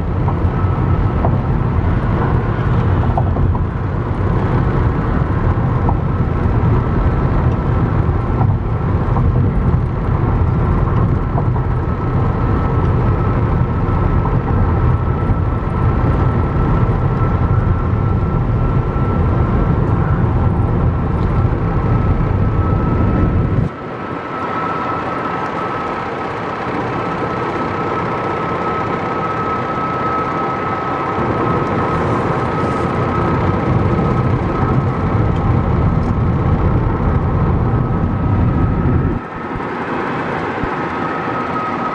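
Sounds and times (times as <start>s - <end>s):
tyre and wind rumble: 0.0s - 24.2s, 25.8s - 41.9s
thin steady whine: 0.0s - 41.9s.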